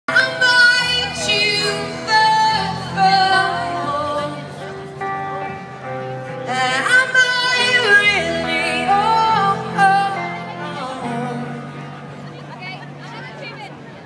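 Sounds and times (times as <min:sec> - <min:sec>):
woman singing lead: 0:00.1 - 0:04.7, 0:06.4 - 0:12.3
live rock band: 0:00.1 - 0:14.0.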